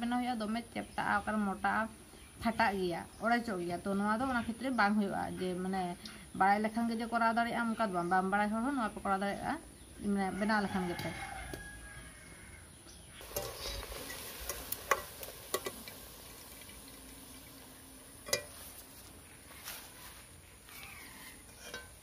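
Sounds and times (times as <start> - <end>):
oil sizzling in a pan: 13.2 - 20.0
skimmer clinking against pan: 18.2 - 18.6, 21.6 - 22.0.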